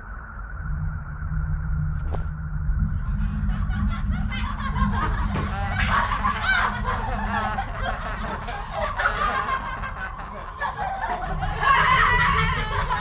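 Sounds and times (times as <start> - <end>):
children laughing mockingly: 3.2 - 13.0.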